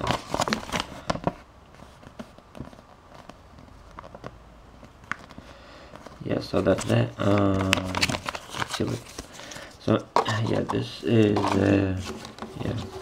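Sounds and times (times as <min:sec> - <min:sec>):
paper crackling and rustling: 0:00.0 - 0:13.0.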